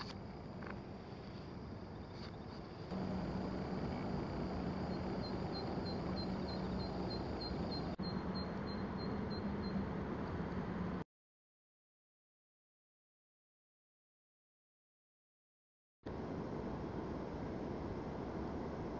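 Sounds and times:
insect chirping: 0.0s - 9.8s
low hum: 2.9s - 9.7s.

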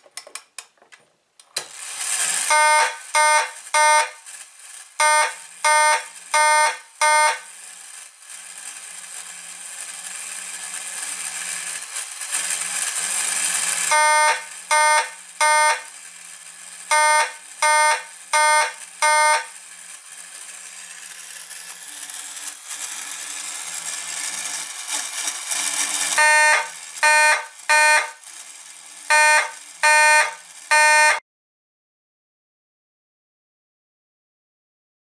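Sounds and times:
fire alarm horn blasts: 2.5s - 4.2s, 5.0s - 7.5s, 13.9s - 15.9s, 16.9s - 19.5s, 26.2s - 28.2s, 29.1s - 31.2s.

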